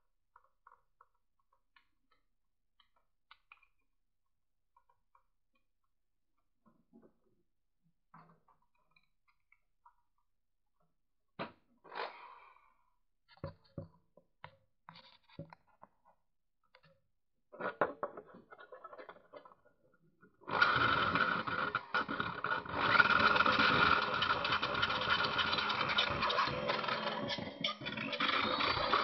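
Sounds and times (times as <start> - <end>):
electric drill grinding metal edge: 20.5 - 29.0.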